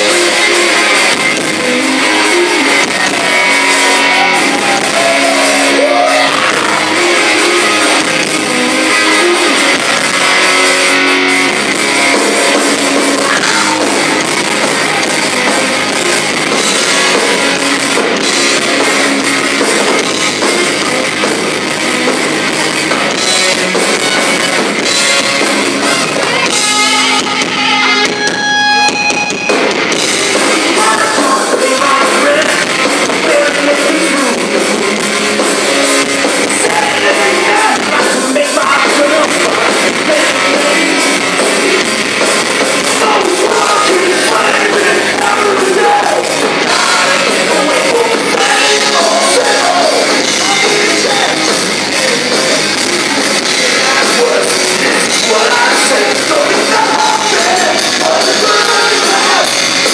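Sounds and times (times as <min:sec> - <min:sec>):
person singing: 0:00.0 - 0:10.7, 0:12.0 - 0:17.6, 0:30.1 - 0:34.8, 0:36.1 - 0:59.9
heavy metal band playing: 0:00.0 - 0:59.9.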